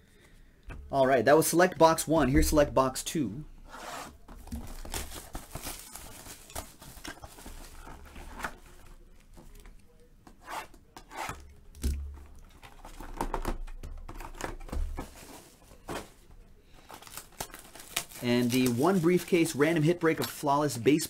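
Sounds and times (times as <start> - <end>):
shrink-wrap tearing and crinkling: 4.6 - 8.6, 16.9 - 19.6.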